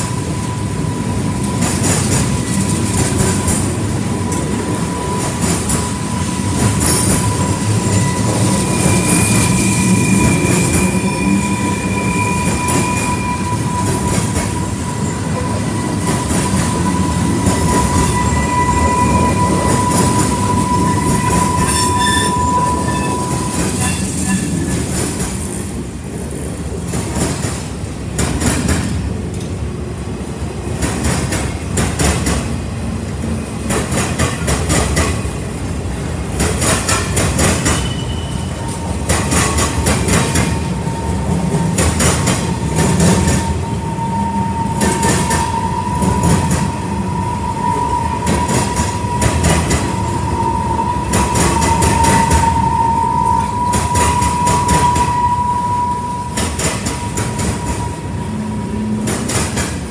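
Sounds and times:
freight train rumbling past: 0:00.0 - 0:59.9
high-pitched wheel squeal: 0:03.4 - 0:24.9, 0:37.4 - 0:59.1.

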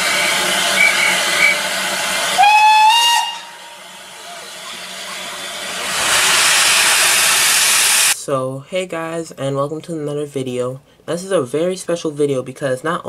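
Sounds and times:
rush of escaping steam: 0:00.0 - 0:08.2
steam locomotive hissing: 0:00.0 - 0:08.2
steam whistle blast: 0:00.0 - 0:08.2.

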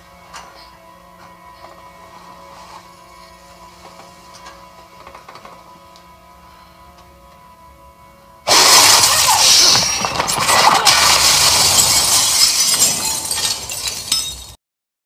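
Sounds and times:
debris crashing and clattering: 0:08.5 - 0:14.6
glass shattering: 0:08.5 - 0:14.6.

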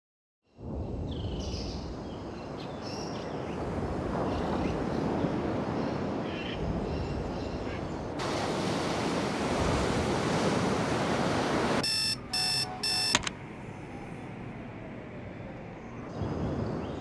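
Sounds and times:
alarm clock beeping: 0:11.8 - 0:13.3
alarm clock switch click: 0:11.8 - 0:13.3.

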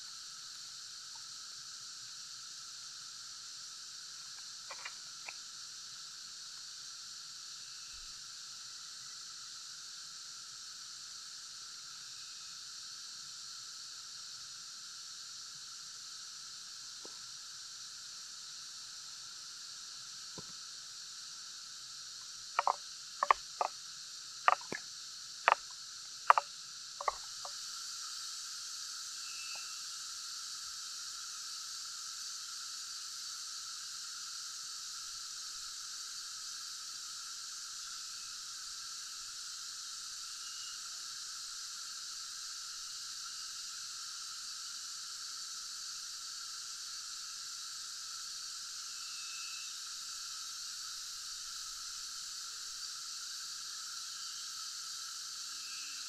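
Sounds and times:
insect chorus: 0:00.0 - 0:56.0
spoon knocking on metal tin: 0:22.6 - 0:23.7, 0:24.5 - 0:24.8.

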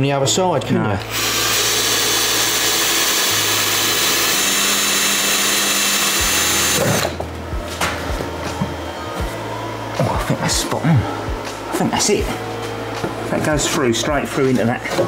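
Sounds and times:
cordless drill drilling: 0:01.1 - 0:07.2.

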